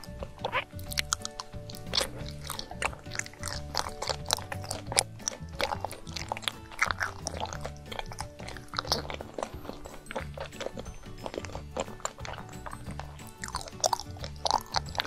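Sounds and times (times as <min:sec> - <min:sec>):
background music: 0:00.0 - 0:15.0
close chewing mouth smacks: 0:00.0 - 0:15.0.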